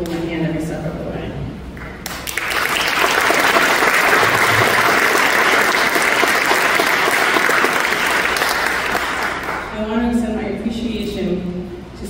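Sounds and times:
audience applauding: 0:01.8 - 0:09.7.

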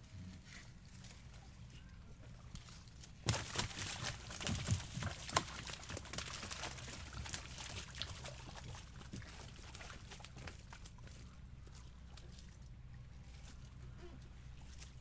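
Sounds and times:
fish splashing and thumping in boat: 0:02.2 - 0:13.7.

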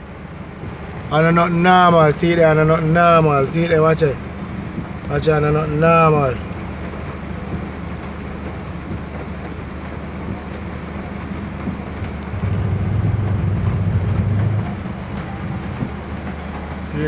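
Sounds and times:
floodwater rushing: 0:00.0 - 0:17.0
heavy rain: 0:00.0 - 0:17.0
truck engine: 0:00.0 - 0:17.0.

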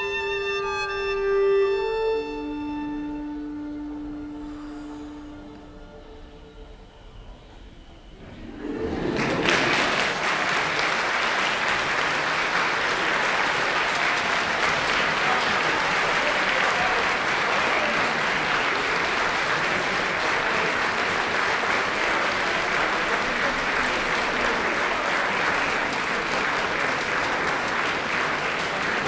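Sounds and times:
audience applauding: 0:08.3 - 0:29.0.

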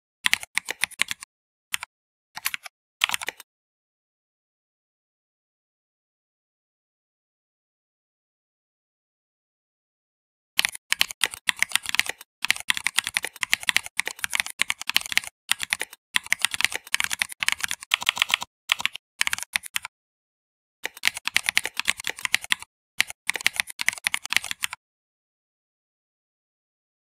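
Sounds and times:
fast typing on keyboard: 0:00.3 - 0:03.4, 0:10.6 - 0:19.9, 0:20.8 - 0:24.8.

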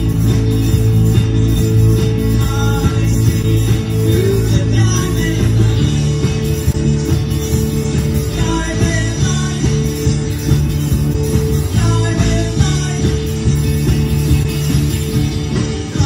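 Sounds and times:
drums with steady beat: 0:00.0 - 0:16.0
electric bass: 0:00.0 - 0:16.0
electric guitar: 0:00.0 - 0:16.0
person singing: 0:02.1 - 0:06.6, 0:08.1 - 0:10.6, 0:11.4 - 0:13.8.

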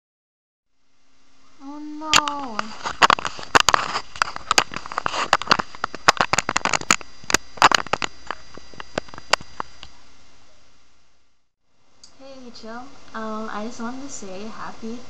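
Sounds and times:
microphone handling crackles: 0:02.1 - 0:10.0.

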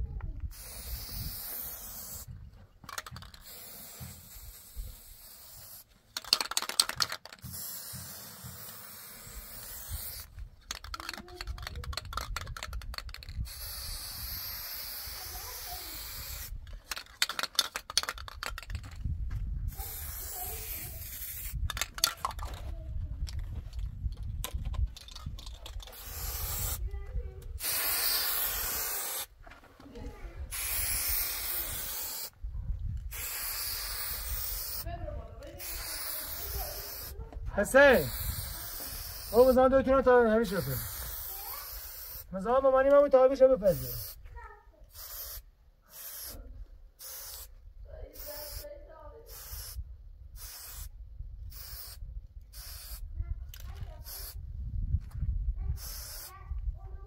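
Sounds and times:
spray-paint can hissing: 0:00.5 - 0:02.3, 0:02.9 - 0:18.9, 0:19.7 - 0:22.6, 0:25.0 - 0:26.8, 0:27.5 - 0:29.3, 0:30.5 - 0:32.3, 0:33.1 - 0:34.9, 0:35.6 - 0:44.2, 0:44.9 - 0:46.4, 0:47.0 - 0:47.5, 0:48.1 - 0:48.7, 0:49.3 - 0:49.8, 0:50.4 - 0:50.9, 0:51.5 - 0:53.0, 0:54.0 - 0:54.4, 0:55.8 - 0:56.3.

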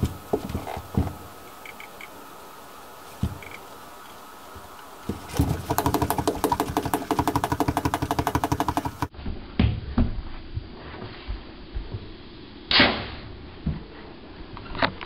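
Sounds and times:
fast mechanical clatter: 0:05.3 - 0:09.1
knocks: 0:05.3 - 0:09.1.

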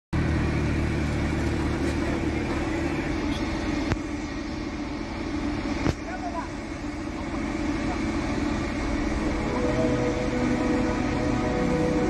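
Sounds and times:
steady engine hum: 0:00.1 - 0:12.0
armoured vehicle driving past: 0:07.2 - 0:12.0.

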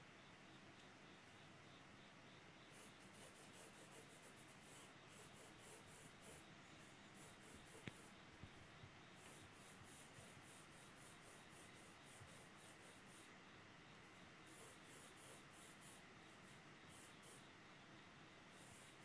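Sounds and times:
pencil scratching on paper: 0:02.7 - 0:08.2, 0:09.2 - 0:13.3, 0:14.4 - 0:17.5, 0:18.6 - 0:19.0
faint tick: 0:07.8 - 0:08.0.

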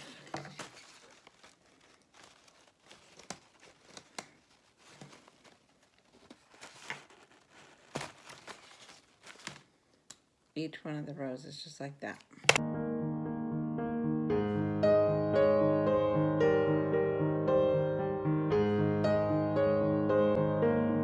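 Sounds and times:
artificial flowers rustling: 0:00.0 - 0:09.9.

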